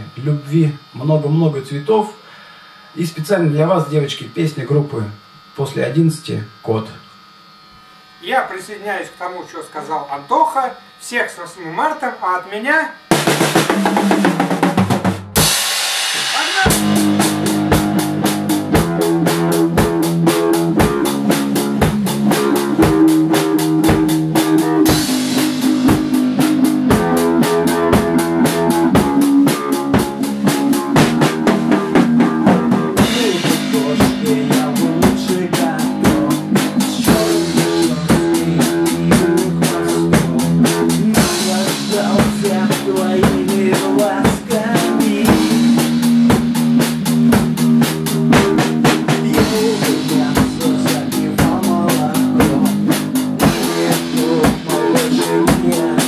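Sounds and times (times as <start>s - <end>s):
drum kit beat: 13.1s - 56.0s
rock band playing live: 13.1s - 56.0s.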